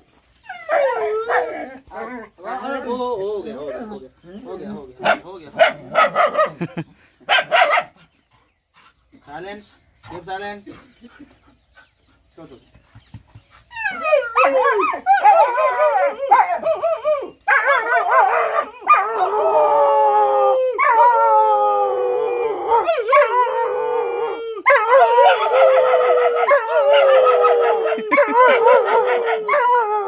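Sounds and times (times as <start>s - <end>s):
dog howling: 13.8s - 30.0s
man howling: 13.9s - 30.0s.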